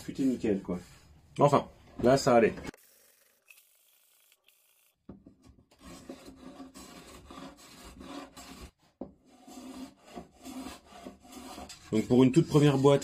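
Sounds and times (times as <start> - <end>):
hand sanding wood: 5.8 - 13.0.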